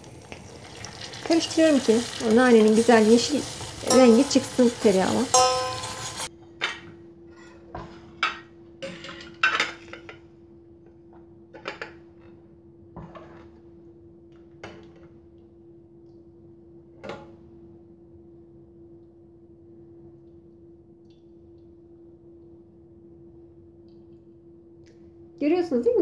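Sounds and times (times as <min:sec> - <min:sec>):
ladle scraping metal pot: 0:03.6 - 0:06.3.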